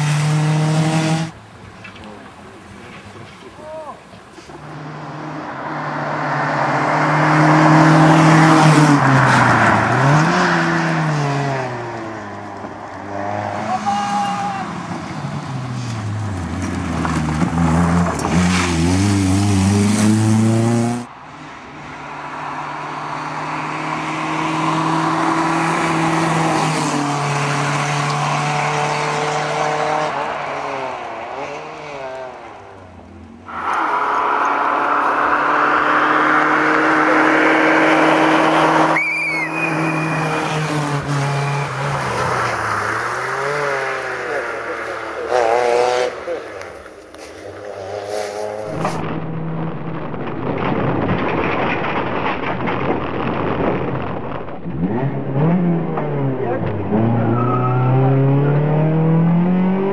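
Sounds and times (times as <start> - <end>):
rally car engines revving: 0.0 - 59.9.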